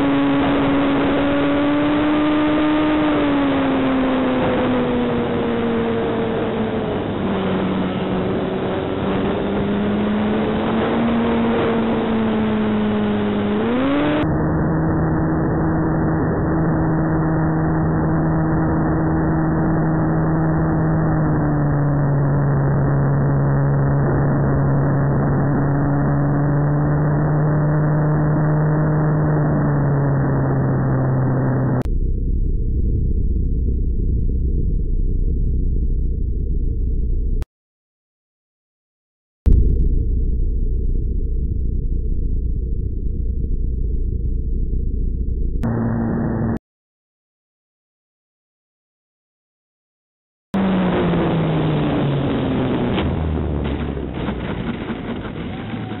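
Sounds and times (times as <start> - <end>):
electric motor and propeller whine: 0.0 - 31.8, 50.6 - 56.0.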